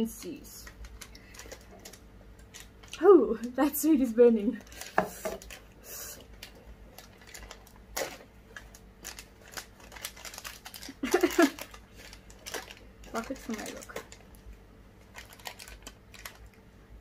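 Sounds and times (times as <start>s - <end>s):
plastic wrapper crinkling: 0.1s - 3.7s, 4.3s - 16.7s.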